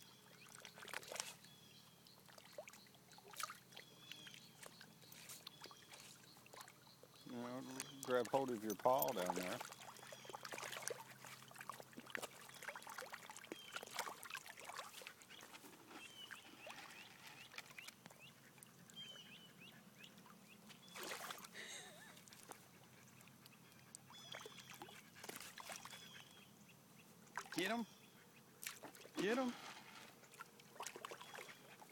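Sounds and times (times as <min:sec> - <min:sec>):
small splashes in shallow water: 0:00.3 - 0:01.5, 0:02.1 - 0:06.9, 0:07.7 - 0:18.3, 0:20.7 - 0:22.6, 0:24.0 - 0:26.1, 0:27.3 - 0:27.8, 0:28.6 - 0:31.9.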